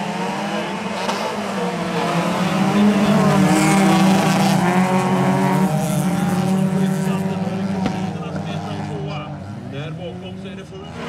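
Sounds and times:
race car engines revving: 0.0 - 11.0.

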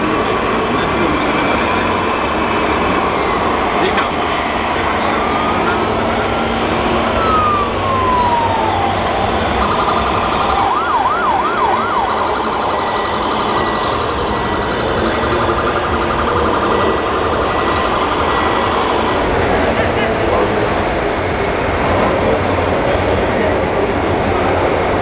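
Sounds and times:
steady background din: 0.0 - 25.0
electronic police siren: 5.0 - 18.0, 19.2 - 25.0.

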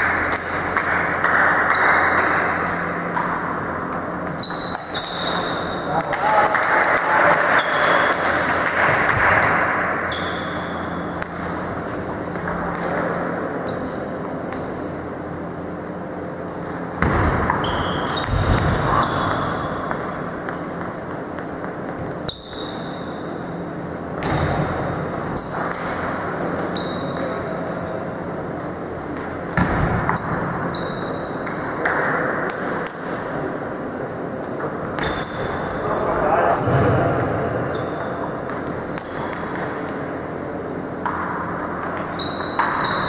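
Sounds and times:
sports hall hubbub: 0.0 - 43.0
table tennis ball bouncing: 12.3 - 13.3, 16.5 - 23.1, 37.2 - 40.0, 41.0 - 43.0.

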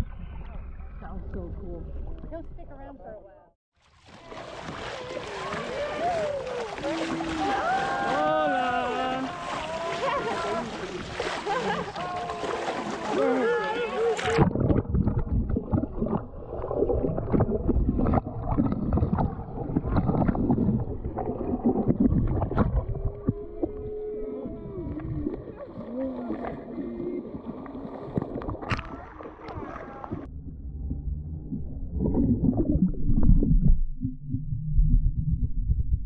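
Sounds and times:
muffled water sloshing: 3.8 - 34.6
wavering low tone: 22.1 - 27.3, 30.0 - 36.0.

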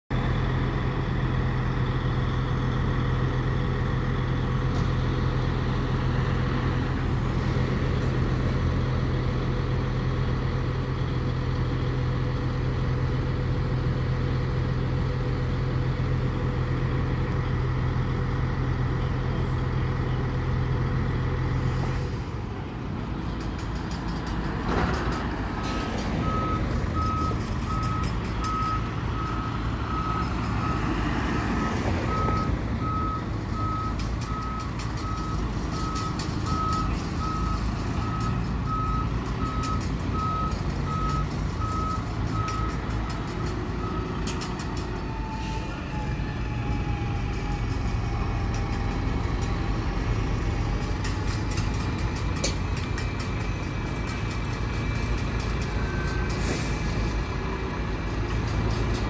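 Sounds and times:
truck diesel engine running: 0.1 - 59.0
reversing alarm beeping: 26.2 - 30.9, 31.6 - 42.8.

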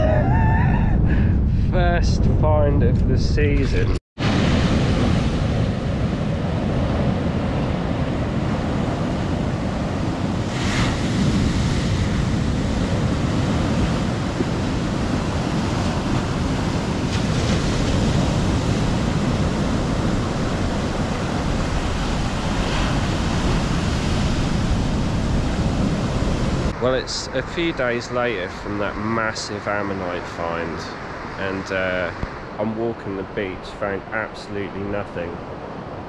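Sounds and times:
waves breaking on beach: 4.2 - 28.8.

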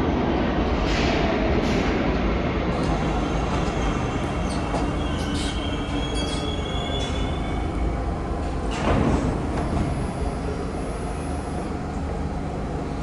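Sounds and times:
subway train rumbling: 0.0 - 13.0
faint wheel squeal: 3.8 - 7.7.

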